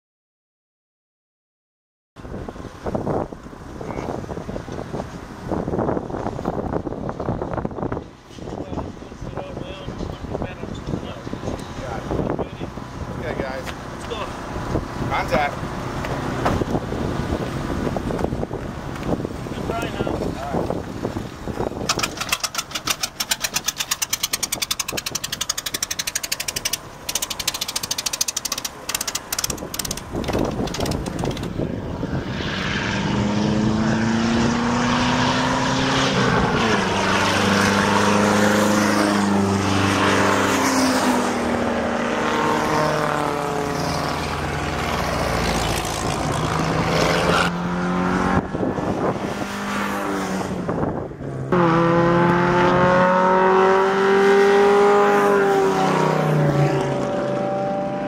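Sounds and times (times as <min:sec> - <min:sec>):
race cars passing: 0:02.2 - 0:58.0
engine firing in rapid pops: 0:21.8 - 0:31.5.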